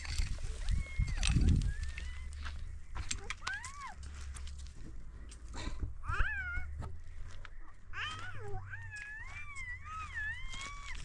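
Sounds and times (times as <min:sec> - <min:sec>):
animal wavering cries: 0:00.0 - 0:02.6, 0:03.2 - 0:04.0, 0:06.0 - 0:06.8, 0:07.9 - 0:11.0.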